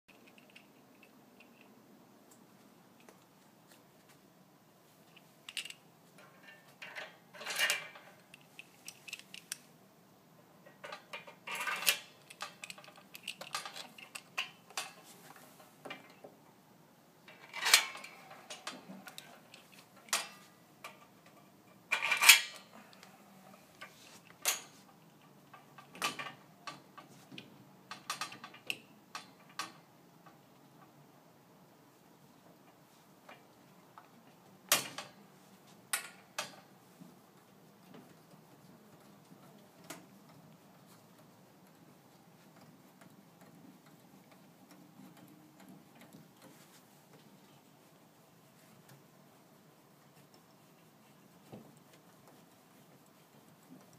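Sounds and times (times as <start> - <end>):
metal pet gate clicking and clinking: 5.5 - 8.4, 10.6 - 15.0, 17.3 - 21.0, 21.9 - 22.7.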